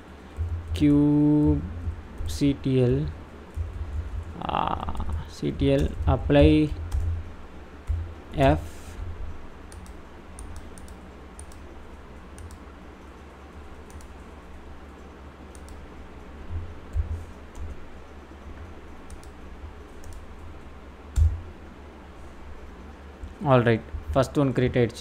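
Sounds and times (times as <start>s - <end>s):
steady low hum: 0.0s - 25.0s
computer keyboard keys clicking: 9.7s - 11.7s, 12.3s - 13.2s, 13.8s - 14.2s, 15.5s - 15.8s, 19.1s - 19.4s, 20.0s - 20.3s.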